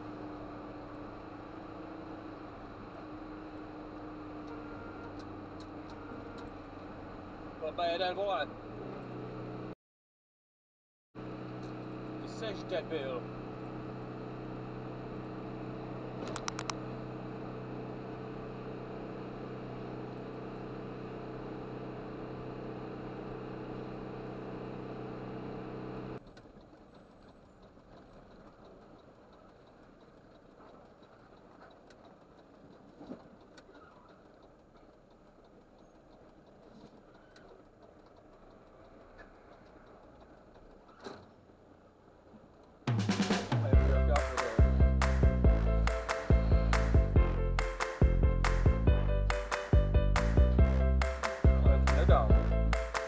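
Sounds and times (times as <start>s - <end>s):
diesel engine drone: 0.0s - 9.8s, 11.2s - 53.0s
faint low rumble: 43.2s - 53.0s.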